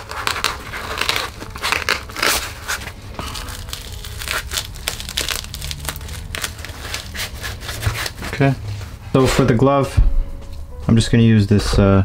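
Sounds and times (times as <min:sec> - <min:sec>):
foam crinkling and crunching: 0:00.0 - 0:08.6.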